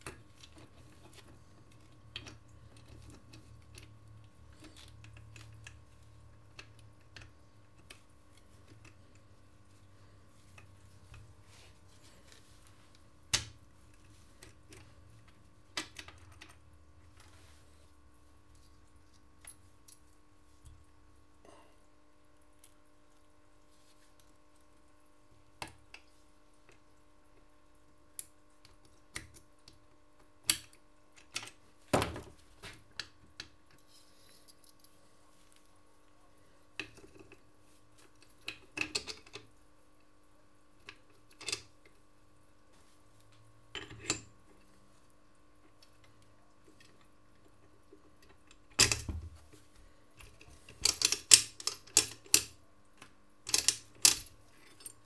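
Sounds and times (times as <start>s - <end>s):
small metal parts clicking: 50.3s - 52.6s, 53.4s - 55.0s.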